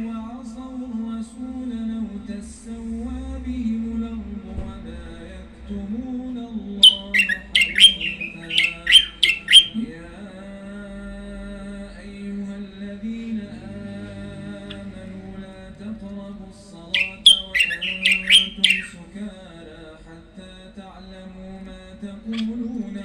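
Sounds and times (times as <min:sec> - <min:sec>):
man chanting or singing: 0:00.0 - 0:23.0
songbird sharp high notes: 0:06.8 - 0:09.8, 0:17.0 - 0:19.0.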